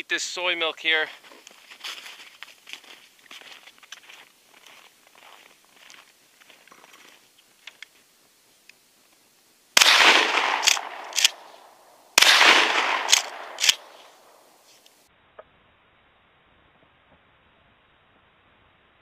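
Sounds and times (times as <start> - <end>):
shotgun blasts: 9.8 - 14.5
shotgun pump racking clacks: 10.6 - 11.4, 13.0 - 14.0.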